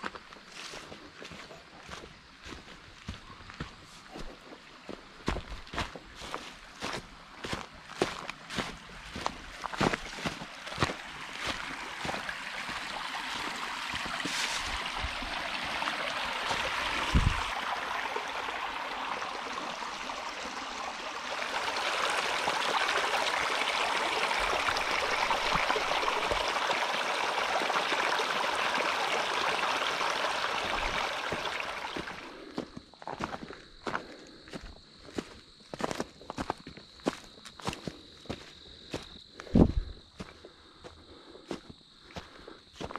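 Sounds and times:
stream water rushing: 0:05.2 - 0:32.6.

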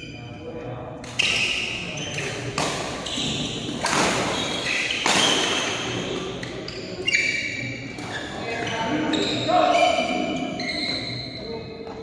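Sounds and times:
shoes squeaking on court: 0:01.0 - 0:12.0
racket hitting shuttlecock: 0:02.5 - 0:03.0, 0:03.7 - 0:06.0.

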